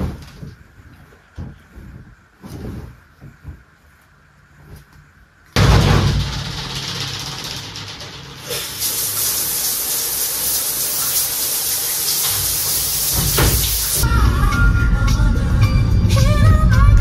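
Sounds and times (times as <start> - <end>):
shower water spraying: 5.6 - 14.0.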